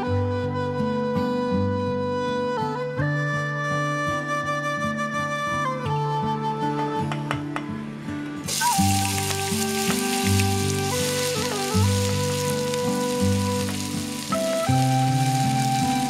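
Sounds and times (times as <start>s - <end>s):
soft instrumental music: 0.0s - 16.0s
rice sizzling in hot oil: 8.5s - 16.0s.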